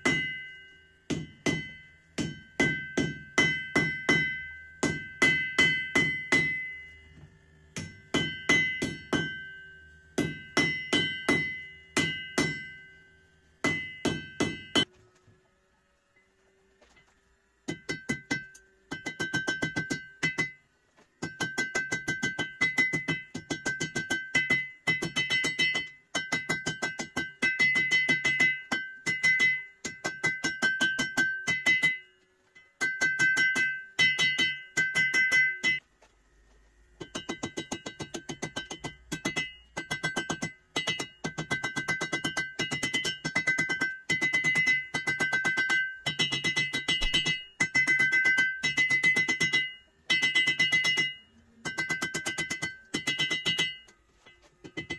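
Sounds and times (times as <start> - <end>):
anvil ringing: 0.0 - 14.9, 17.7 - 35.8, 37.0 - 54.9
hammer striking hot steel on anvil: 0.0 - 14.9, 17.6 - 35.8, 37.0 - 54.9.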